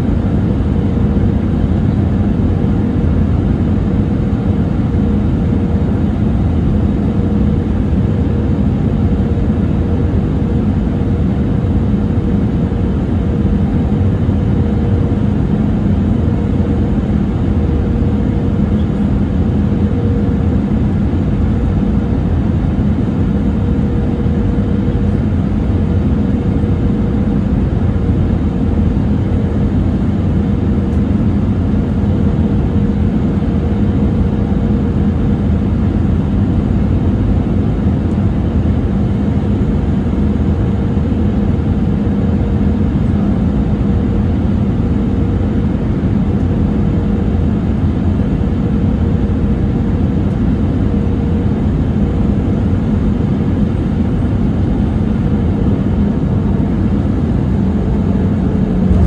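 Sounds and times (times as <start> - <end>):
aircraft cabin engine rush: 0.0 - 59.0
low hum: 54.1 - 59.0.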